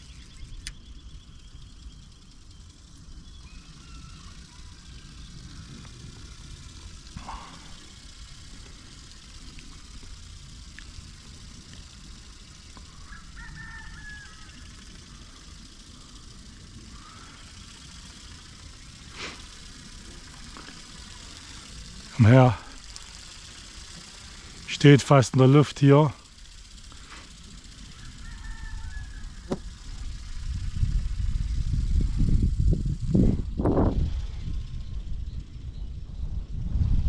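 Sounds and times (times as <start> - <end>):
faint bird chirps: 0.0 - 5.8, 27.9 - 29.7
steady low rumble: 0.0 - 37.0.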